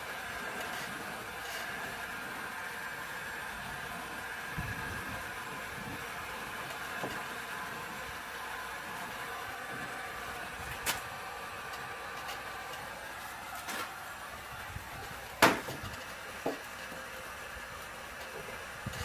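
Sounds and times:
heat gun fan hum: 0:00.0 - 0:19.0
knocks of wood and plastic: 0:15.4 - 0:16.6.

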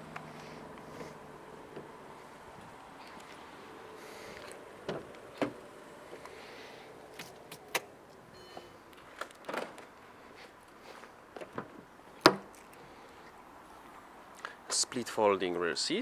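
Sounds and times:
car door clicks and knocks: 0:11.4 - 0:12.5.

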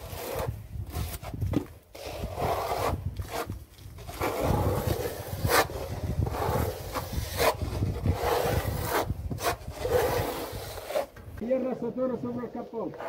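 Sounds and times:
plaster scraping on a wall: 0:00.0 - 0:11.4.

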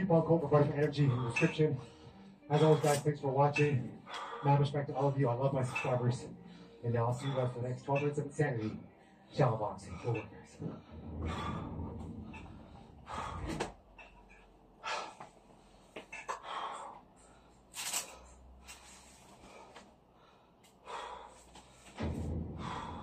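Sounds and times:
man breathing hard: 0:04.0 - 0:04.6, 0:10.6 - 0:13.9, 0:14.7 - 0:23.0.

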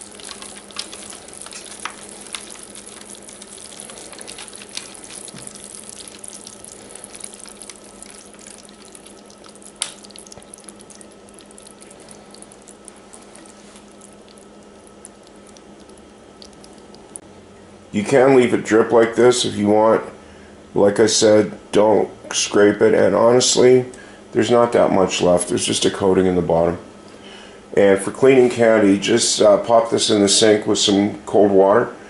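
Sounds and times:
hot syrup crackling: 0:00.0 - 0:17.2
faint steady hum: 0:00.0 - 0:32.0.

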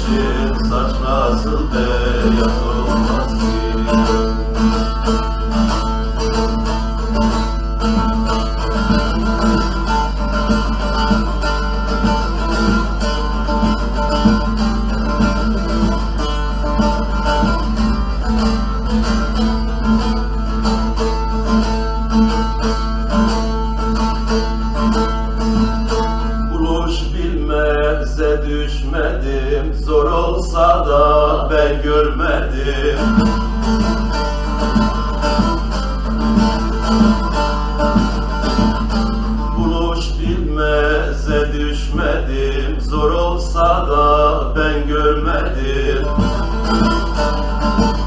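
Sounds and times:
man singing: 0:00.0 - 0:04.7, 0:26.4 - 0:33.5, 0:39.4 - 0:46.6
plucked and strummed saz: 0:00.0 - 0:28.0, 0:31.0 - 0:48.0
steady low hum: 0:00.0 - 0:48.0.

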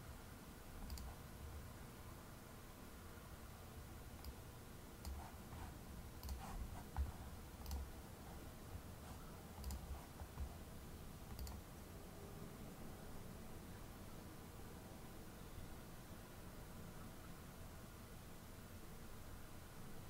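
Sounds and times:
faint steady hum: 0:00.0 - 0:20.0
computer mouse clicks: 0:00.8 - 0:01.2, 0:04.2 - 0:04.4, 0:05.0 - 0:08.0, 0:09.1 - 0:10.6, 0:11.2 - 0:11.6.

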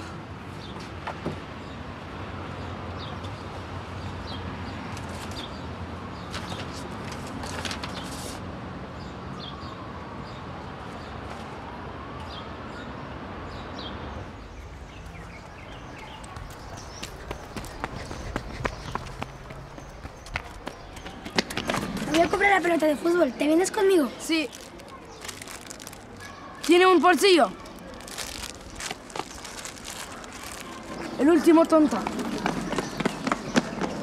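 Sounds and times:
low traffic hum: 0:00.0 - 0:34.0
small birds chirping: 0:12.2 - 0:34.0
papers and bag rustling: 0:24.2 - 0:31.5.

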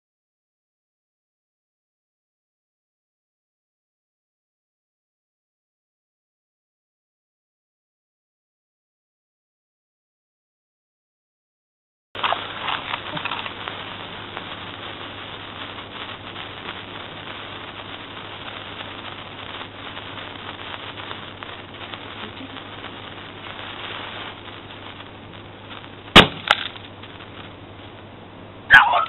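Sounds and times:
small crack: 0:12.2 - 0:14.5, 0:25.7 - 0:27.6
firecracker bang: 0:12.2 - 0:28.1
firecracker fuse fizzing: 0:12.2 - 0:29.0.

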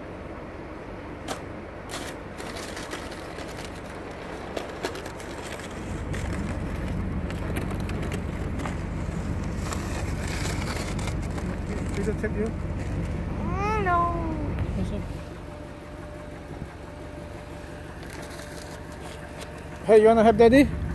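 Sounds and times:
crunching clicks: 0:01.2 - 0:12.2
wind buffeting microphone: 0:02.2 - 0:15.4.

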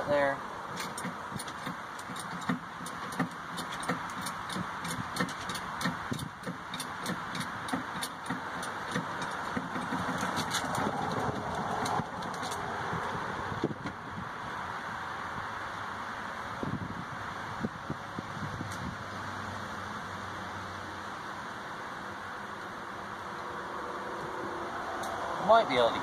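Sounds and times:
jack clicking: 0:00.8 - 0:12.6.

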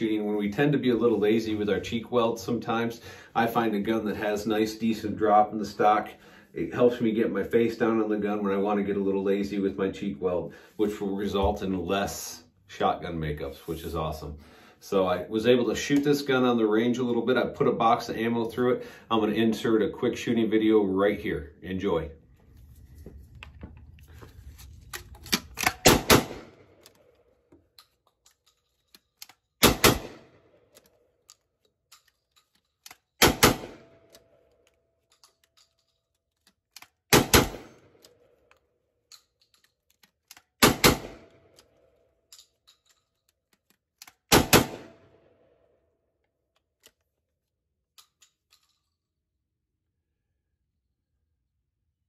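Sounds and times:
shotgun shots: 0:25.3 - 0:26.7, 0:29.6 - 0:30.4, 0:33.2 - 0:34.1, 0:37.1 - 0:37.9, 0:40.6 - 0:41.4, 0:44.3 - 0:45.1.

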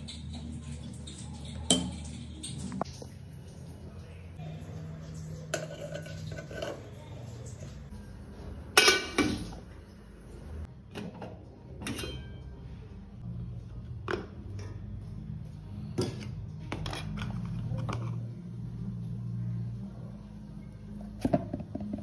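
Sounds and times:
aluminium cookware clattering: 0:05.5 - 0:07.1, 0:08.7 - 0:09.7, 0:10.9 - 0:12.7
ringing metal lid clank: 0:11.8 - 0:12.5.

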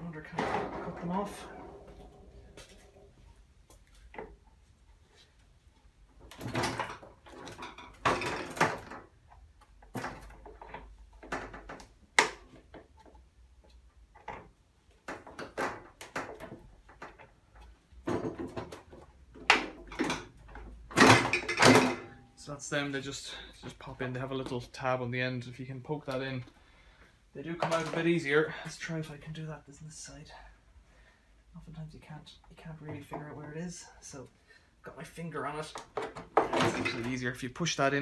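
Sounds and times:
plastic and metal knocks and rattles: 0:00.2 - 0:03.1, 0:06.1 - 0:22.2, 0:35.7 - 0:37.2.

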